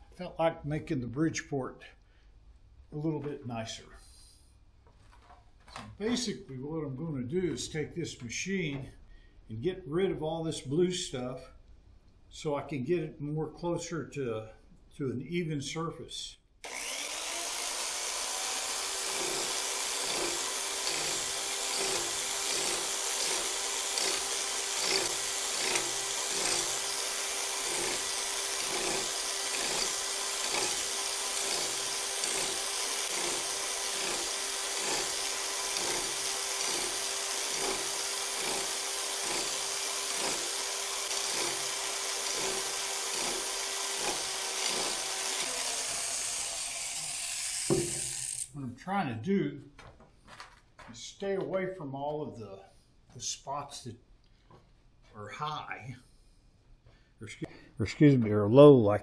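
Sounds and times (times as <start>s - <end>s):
power scraper scraping metal: 16.7s - 48.5s.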